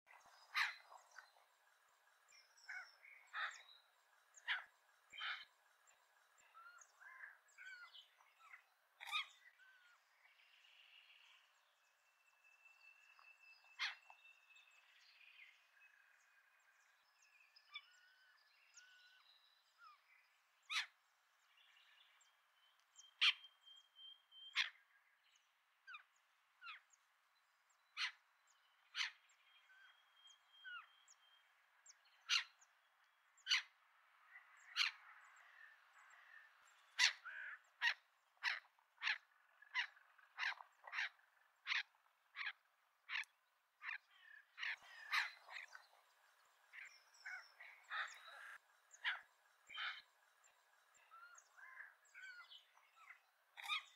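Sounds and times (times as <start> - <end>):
sharp bird calls: 0.1 - 1.5, 2.2 - 11.5, 12.7 - 15.6, 20.6 - 21.0, 23.0 - 24.8, 32.2 - 32.7, 33.4 - 33.8, 36.0 - 46.0, 46.6 - 53.9
bird chirps: 0.1 - 24.8, 27.7 - 32.8, 35.6 - 53.9.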